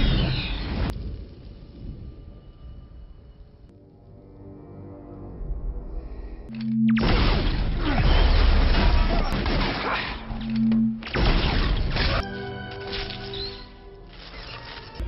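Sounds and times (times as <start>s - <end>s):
film score with held notes: 1.0s - 15.0s
crashing and blasts: 7.0s - 10.3s.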